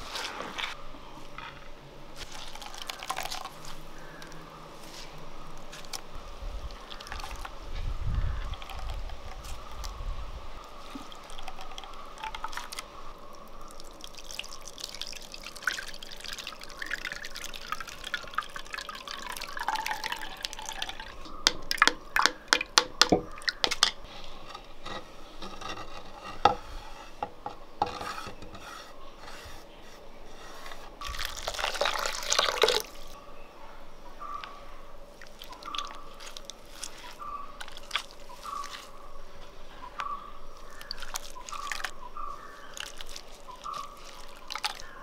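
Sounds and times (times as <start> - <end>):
coconut milk squishing and dripping: 2.1 - 24.1, 30.6 - 33.2, 34.2 - 45.0
water pouring: 2.2 - 7.6, 8.2 - 9.9, 10.6 - 24.0, 31.0 - 33.2, 35.2 - 39.0, 40.6 - 45.0.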